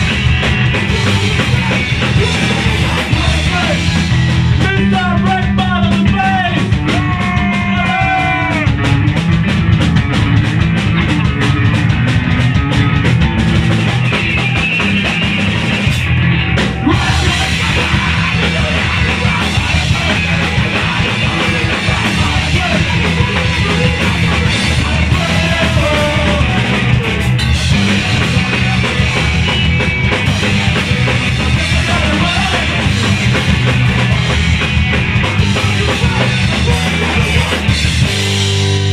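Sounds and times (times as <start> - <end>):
person singing: 0.0 - 8.9, 16.8 - 29.6, 30.2 - 34.3, 35.4 - 37.8
punk rock band playing live: 0.0 - 38.9.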